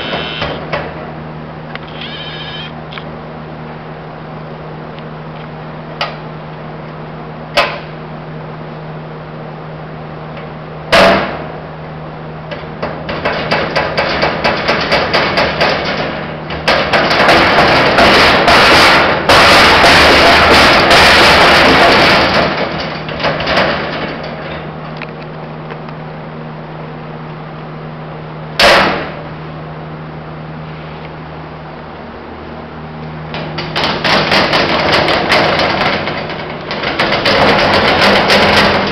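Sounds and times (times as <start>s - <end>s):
lid rattling and banging: 33.4s - 38.9s.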